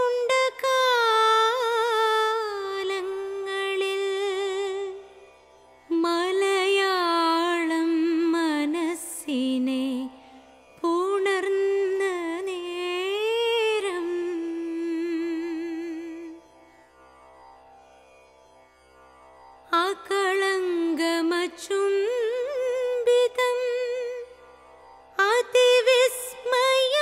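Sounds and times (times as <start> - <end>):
person singing wordless melody: 0.0 - 5.0, 10.8 - 16.4, 19.7 - 24.4, 25.2 - 27.0.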